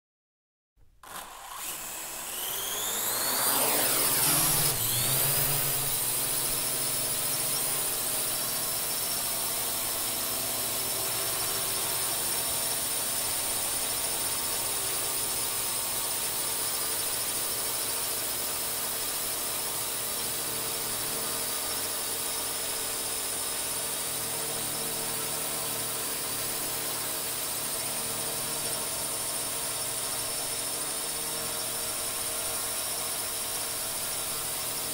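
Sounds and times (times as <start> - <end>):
drone propellers whining: 1.0 - 15.4.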